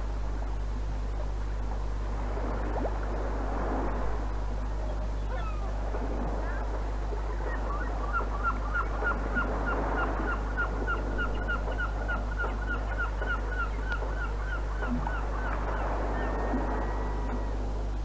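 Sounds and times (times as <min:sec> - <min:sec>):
low mains hum: 0:00.0 - 0:18.0.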